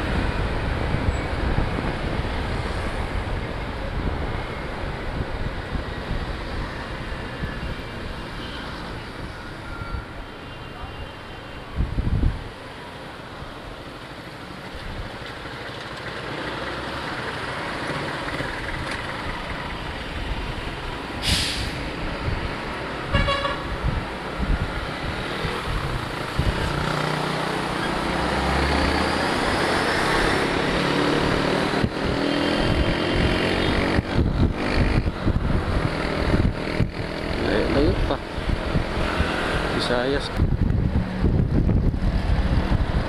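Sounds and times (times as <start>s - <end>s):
road and wind noise: 0.0s - 43.0s
short hiss: 21.2s - 21.9s
beeping horn: 23.1s - 23.6s
motorcycle engine revving: 25.4s - 39.9s.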